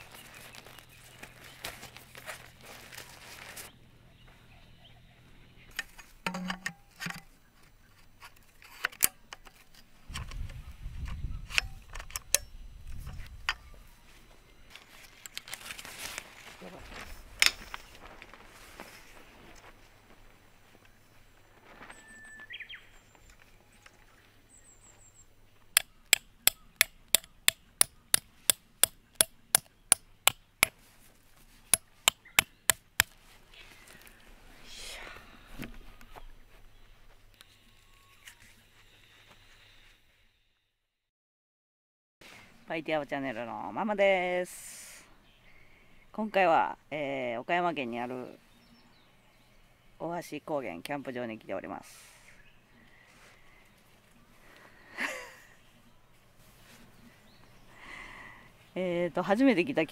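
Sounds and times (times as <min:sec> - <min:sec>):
tent poles clicking together: 0:05.7 - 0:07.3, 0:08.0 - 0:13.7, 0:14.7 - 0:19.8, 0:25.7 - 0:33.2
hammer striking metal tent peg: 0:06.3 - 0:07.2, 0:25.8 - 0:30.8, 0:31.7 - 0:33.2.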